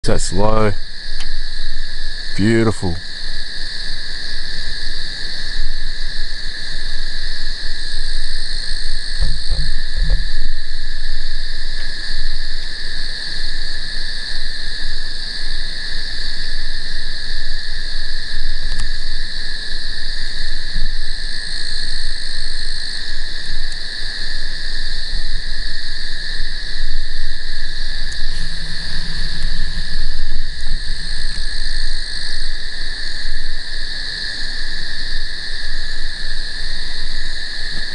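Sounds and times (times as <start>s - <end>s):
frogs and insects trilling: 0.0s - 37.9s
low thumps: 28.2s - 32.0s.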